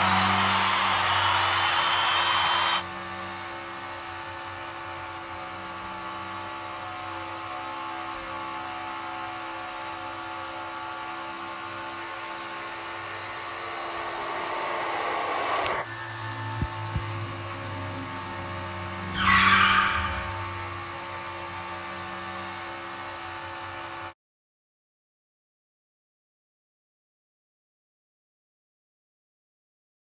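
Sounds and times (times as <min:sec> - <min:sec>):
race car engine revving: 0:00.0 - 0:03.6, 0:13.1 - 0:22.9.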